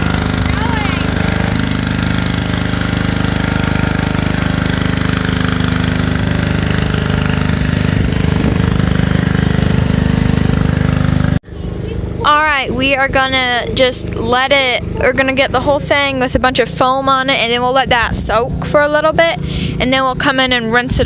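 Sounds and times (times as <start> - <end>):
foam spray hissing: 0.0 - 11.4
pressure washer running: 0.0 - 20.7.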